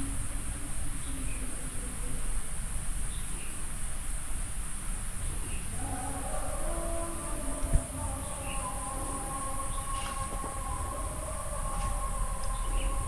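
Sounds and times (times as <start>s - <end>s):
high-pitched insect chorus: 0.0s - 13.0s
low steady hum: 5.5s - 13.0s.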